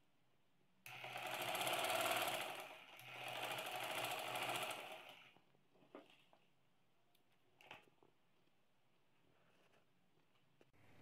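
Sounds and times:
sewing machine stitching: 0.9s - 5.4s.

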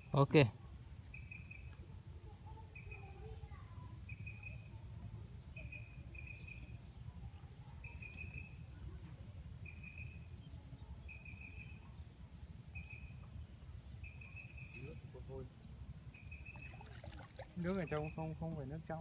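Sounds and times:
wind rumble on microphone: 4.7s - 17.5s.

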